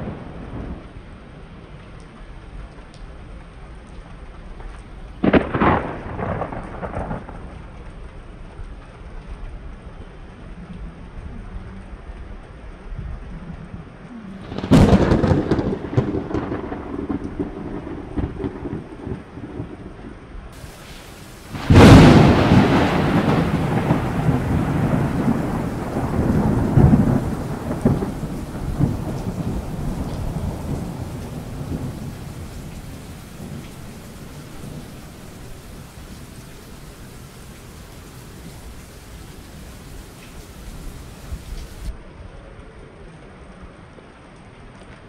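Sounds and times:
thunder rumbling: 0.0s - 1.0s, 5.2s - 7.8s, 14.2s - 41.9s
steady rain: 0.0s - 45.0s
loud thunderclap: 5.2s - 7.6s, 14.4s - 19.8s, 20.6s - 41.9s.

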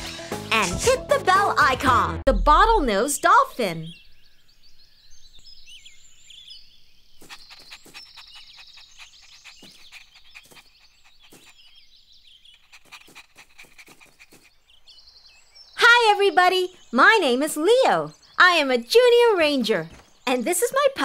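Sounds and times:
birds chirping and trilling: 2.3s - 21.0s
cartoon puppy panting: 7.2s - 14.7s.

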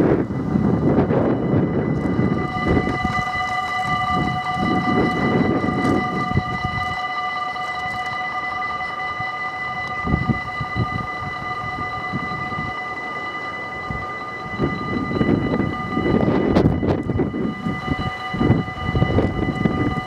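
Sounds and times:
gusty low rumble: 0.0s - 7.1s, 13.8s - 20.0s
level crossing warning bell: 0.0s - 20.0s.

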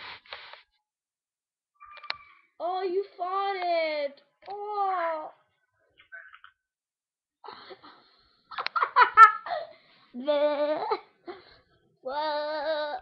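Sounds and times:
girls laughing: 7.5s - 9.7s.

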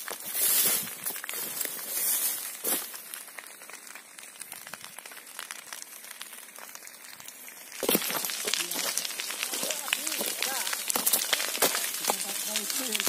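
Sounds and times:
brush rustling: 0.0s - 3.0s
dry grass crackling: 0.0s - 13.0s.

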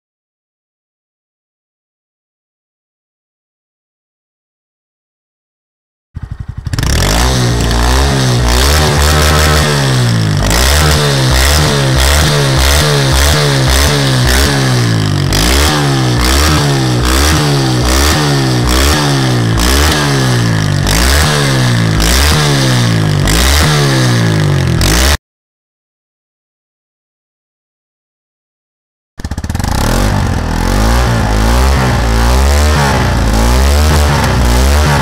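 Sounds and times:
motorcycle engine revving: 6.2s - 25.2s, 29.2s - 35.0s.

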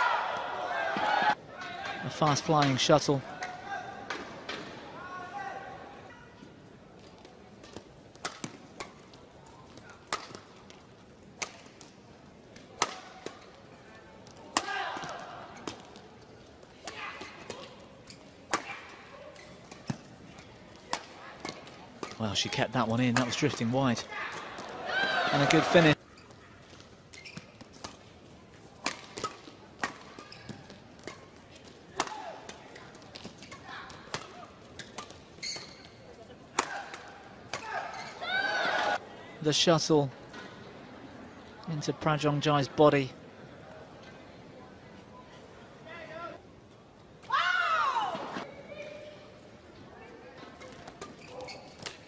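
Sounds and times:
faint arena noise: 0.0s - 52.0s
low hum of hall: 0.0s - 52.0s
racket hitting shuttlecock: 7.7s - 9.0s, 10.1s - 10.5s, 11.4s - 11.8s, 12.8s - 13.5s, 18.5s - 18.9s, 28.8s - 31.2s, 31.9s - 35.8s, 36.5s - 38.0s.

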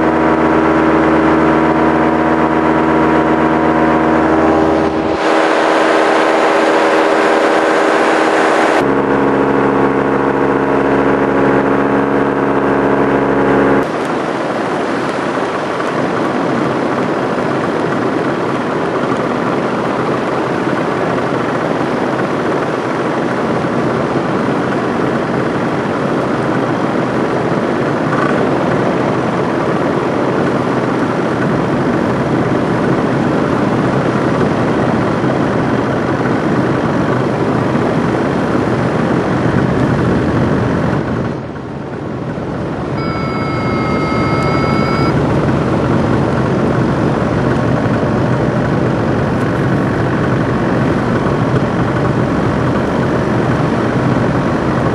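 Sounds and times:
steady beep: 43.0s - 45.2s.

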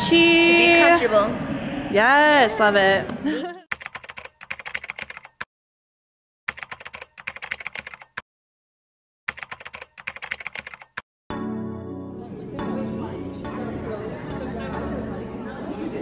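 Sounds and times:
keyboard typing clicks: 3.7s - 5.5s, 6.5s - 8.2s, 9.3s - 11.0s.

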